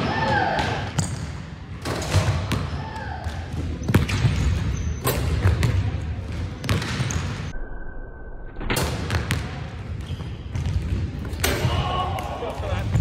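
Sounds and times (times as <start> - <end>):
low gym room noise: 8.6 - 13.0.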